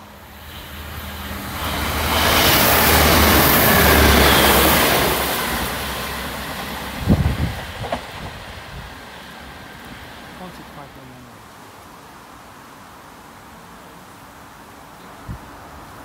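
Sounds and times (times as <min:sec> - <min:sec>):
train passing: 0:00.0 - 0:11.2.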